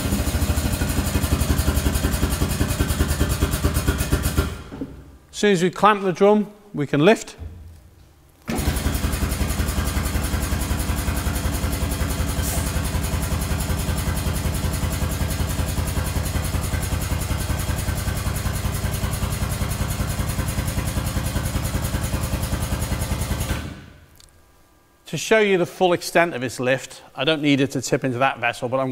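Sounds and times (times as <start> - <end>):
pneumatic pump pulsing: 0.0 - 5.1, 8.5 - 23.9.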